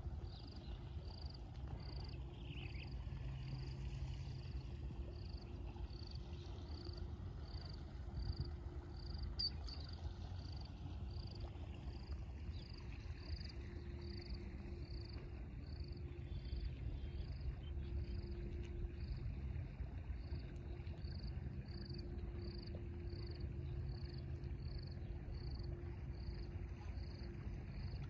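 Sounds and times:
wind rumble on microphone: 0:00.0 - 0:28.0
insect chirping: 0:05.2 - 0:11.2, 0:21.0 - 0:27.9.

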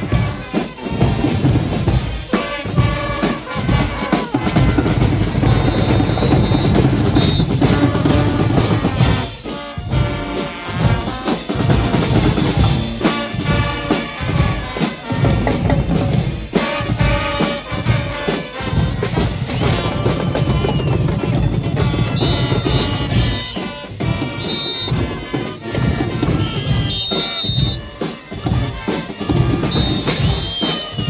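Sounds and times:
brass instruments: 0:00.0 - 0:31.0
drums and cymbals: 0:00.0 - 0:31.0.

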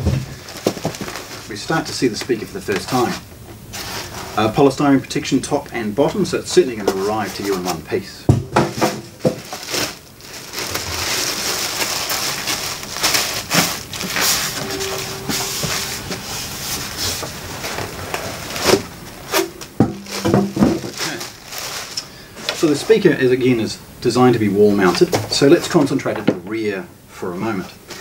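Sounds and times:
plastic bag crinkling: 0:00.0 - 0:04.4, 0:08.8 - 0:14.6, 0:16.6 - 0:23.3
knocks and squeaks of polystyrene packing: 0:00.0 - 0:23.2, 0:24.8 - 0:26.5.

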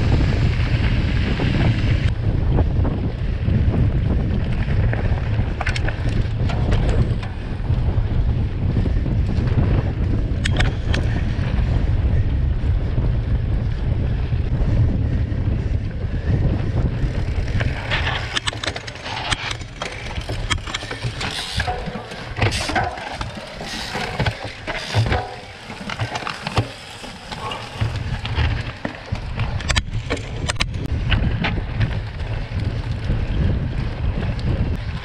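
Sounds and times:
bike rattling on rough dirt: 0:00.0 - 0:35.0
wind buffeting microphone: 0:00.0 - 0:35.0.

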